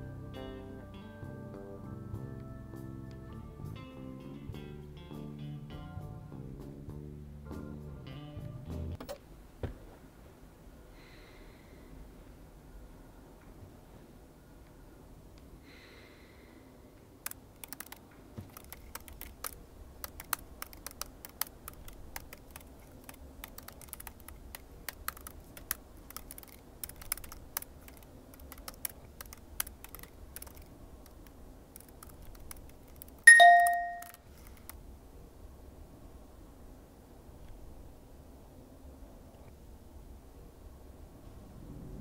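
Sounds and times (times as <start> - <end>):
laptop keyboard typing: 17.1 - 34.8
bell-like chime: 33.3 - 34.1.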